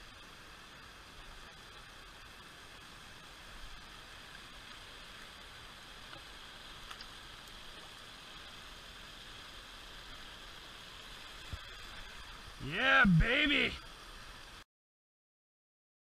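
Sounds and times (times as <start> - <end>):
creek running over rocks: 0.1 - 14.6
faint ticks: 6.0 - 8.0.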